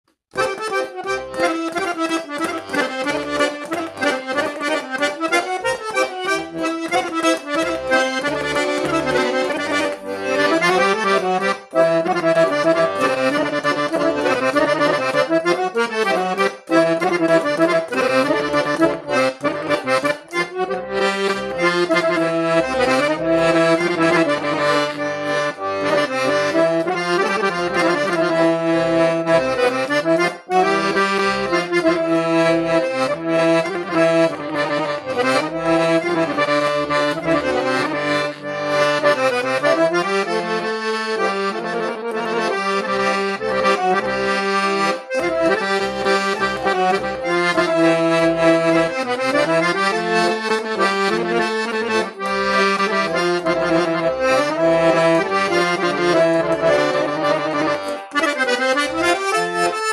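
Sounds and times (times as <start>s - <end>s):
accordion melody: 0.1s - 59.9s.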